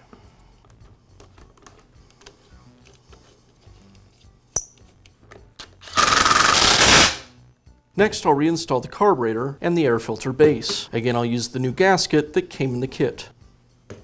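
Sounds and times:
power screwdriver whining: 5.8s - 7.2s.

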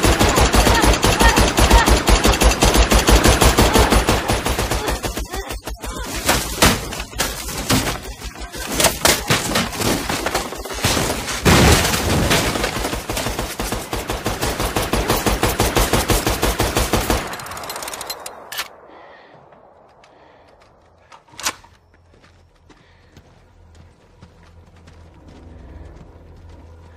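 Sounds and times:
rapid machine-gun fire: 0.0s - 6.8s, 7.4s - 17.6s.

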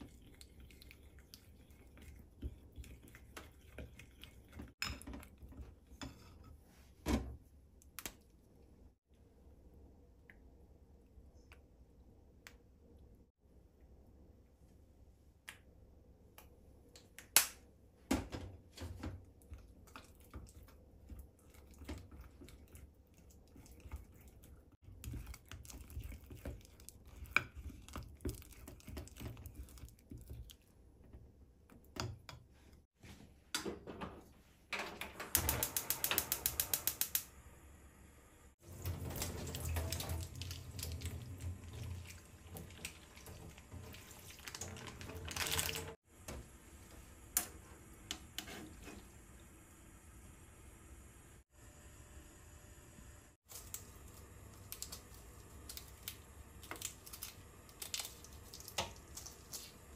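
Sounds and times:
tap running water: 38.6s - 50.4s, 53.5s - 59.9s
kitchen items clicking and knocking: 38.7s - 46.0s.

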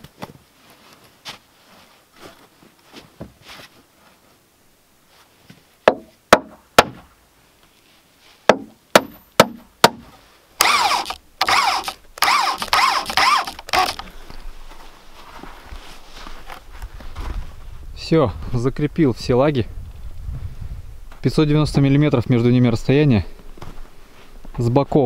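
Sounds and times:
hammer driving nails into wood: 5.9s - 7.0s, 8.5s - 10.0s, 10.6s - 14.0s
electric drill driving screw: 10.6s - 14.1s.

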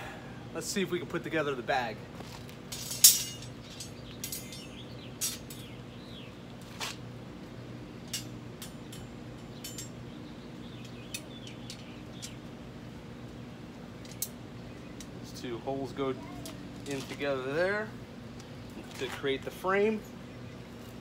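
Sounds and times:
steel wire rods clinking: 2.2s - 5.8s, 8.0s - 12.6s, 13.9s - 14.4s.

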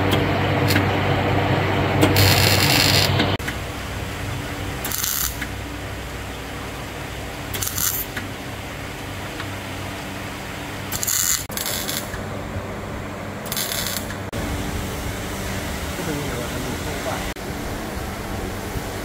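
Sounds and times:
steady low hum: 0.0s - 19.0s
welding arc crackle: 2.1s - 4.1s, 4.8s - 5.7s, 7.4s - 8.3s, 10.9s - 12.2s, 13.4s - 14.3s.

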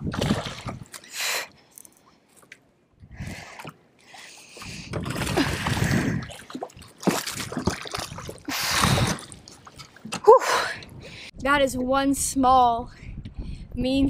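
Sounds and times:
water splashing and sloshing: 0.0s - 11.2s.

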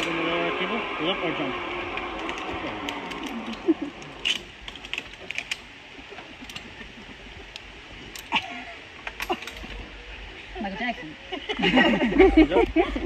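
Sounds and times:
metallic clicks of zip-line gear: 1.9s - 6.8s, 7.5s - 8.4s, 9.0s - 9.8s.

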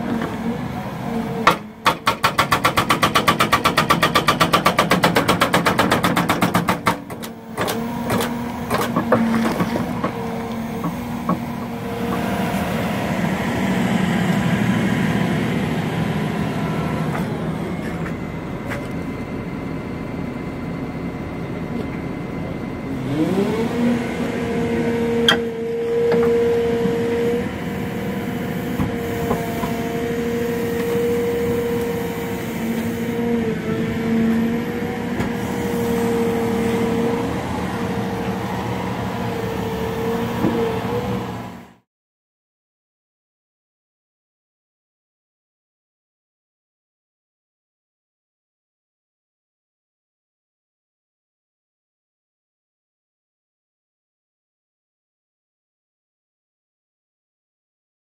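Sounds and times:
diesel engine and hydraulics running: 0.0s - 41.9s.

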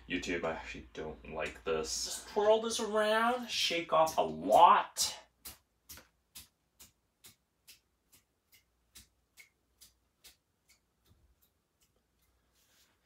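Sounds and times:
faint ticks of brush flicking: 5.4s - 12.7s.

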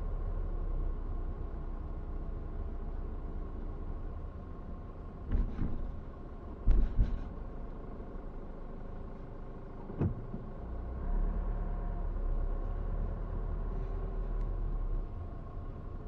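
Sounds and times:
car engine and tyre rumble: 0.0s - 16.0s
thump inside car: 5.2s - 7.5s, 9.8s - 10.5s.

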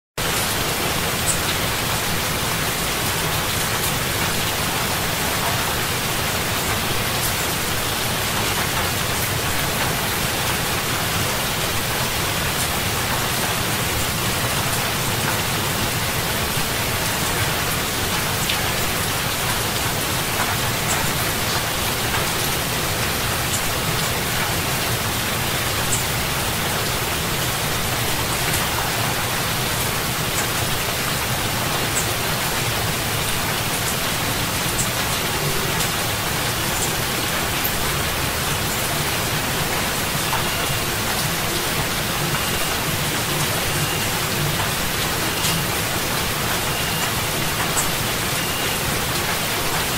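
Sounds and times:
heavy rain falling: 0.2s - 49.9s.

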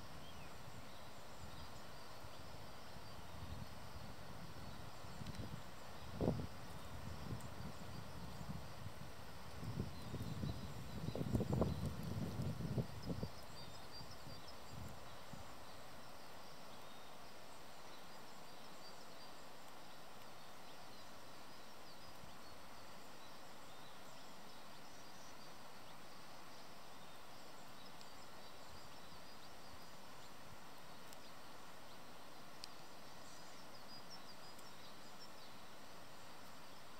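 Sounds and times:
outdoor background hiss: 0.0s - 36.9s
faint click: 5.1s - 5.5s, 19.6s - 20.4s, 31.0s - 31.4s, 32.6s - 32.8s, 34.4s - 34.9s.

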